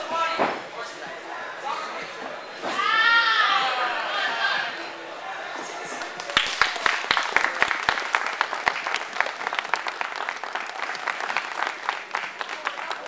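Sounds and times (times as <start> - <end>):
crowd applauding: 6.0 - 13.0.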